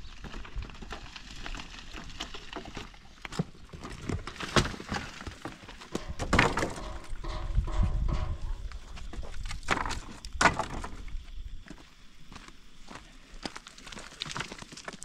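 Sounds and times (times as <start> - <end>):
scrap metal knocks and clatter: 5.8 - 10.0.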